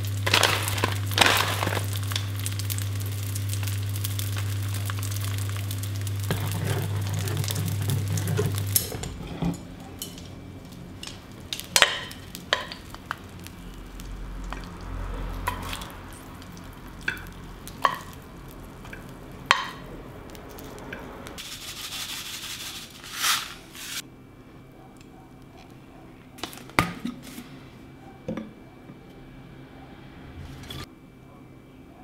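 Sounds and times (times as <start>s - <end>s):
rolls frying in a pan: 0.0s - 24.0s, 25.4s - 27.9s
spoon stirring a saucepan: 6.3s - 10.4s.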